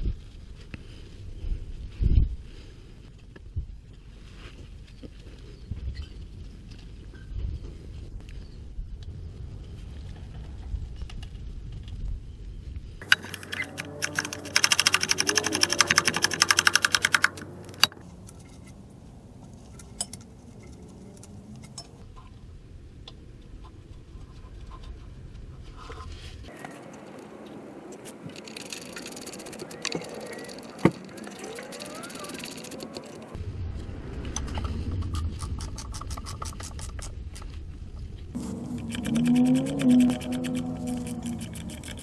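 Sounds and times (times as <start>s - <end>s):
ratchet wrench clicking: 13.0s - 17.9s
sharp metal clicks: 13.0s - 18.0s, 38.7s - 42.0s.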